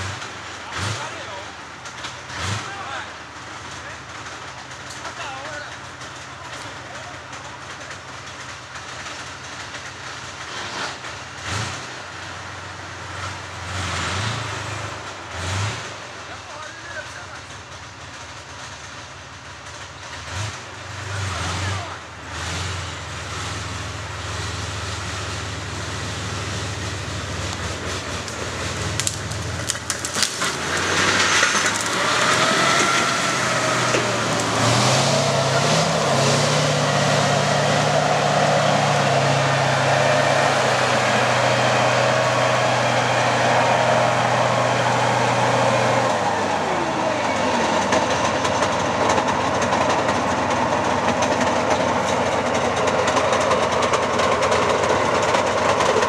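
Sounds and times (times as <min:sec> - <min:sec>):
diesel engine running hard: 0:00.0 - 0:56.0
steel tracks clattering: 0:00.1 - 0:13.7, 0:14.8 - 0:21.1, 0:46.1 - 0:56.0.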